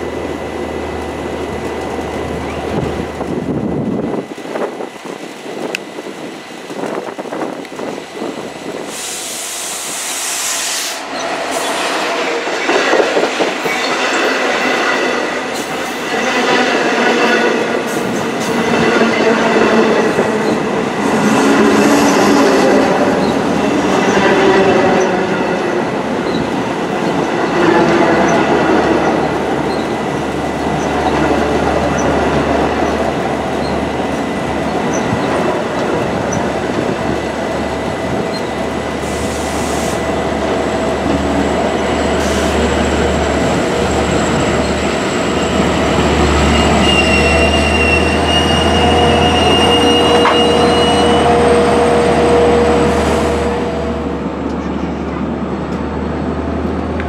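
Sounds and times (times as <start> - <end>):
diesel locomotive engine drone: 0.0 - 57.0
train wheels on rails: 0.0 - 57.0
high wheel squeal: 41.8 - 53.2.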